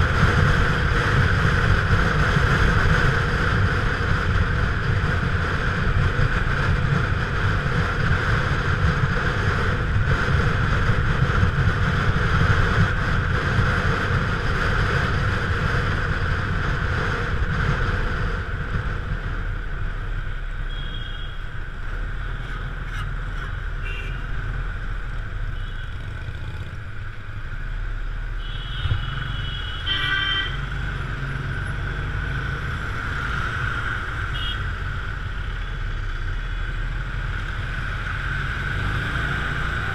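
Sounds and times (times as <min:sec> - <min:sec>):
motorcycle engine: 0:00.0 - 0:39.9
vehicle horn toots: 0:20.7 - 0:21.4, 0:23.8 - 0:24.2, 0:28.4 - 0:30.7, 0:34.3 - 0:34.7.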